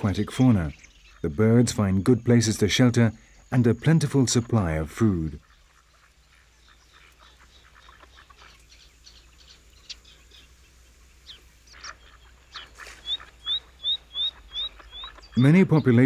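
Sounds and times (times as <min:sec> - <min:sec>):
small bird chirping: 0:00.0 - 0:16.0
faint duck calls: 0:04.4 - 0:10.4, 0:11.3 - 0:16.0.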